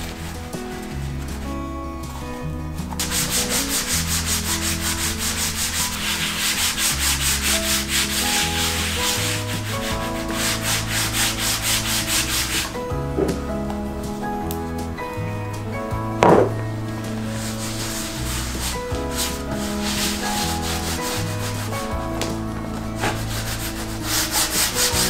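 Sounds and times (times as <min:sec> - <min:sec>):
cloth rubbing on wood: 0:03.0 - 0:13.5, 0:16.2 - 0:25.0.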